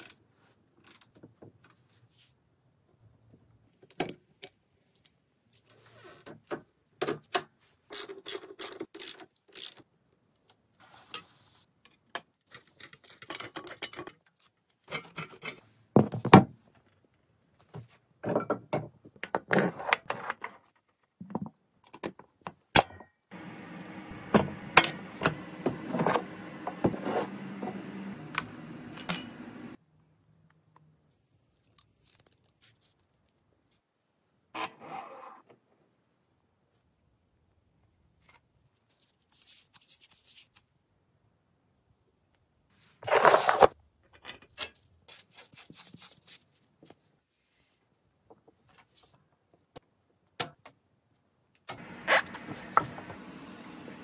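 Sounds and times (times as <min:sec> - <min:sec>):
steady mechanical noise: 0:23.4 - 0:29.8, 0:51.7 - 0:54.0.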